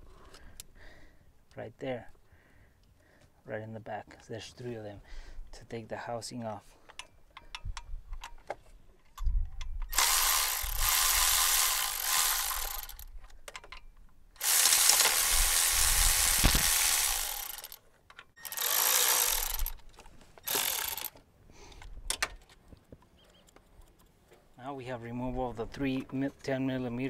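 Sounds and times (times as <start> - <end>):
electric ratchet whirring: 9.9 - 13.1, 14.4 - 17.8, 18.4 - 19.8, 20.4 - 21.2.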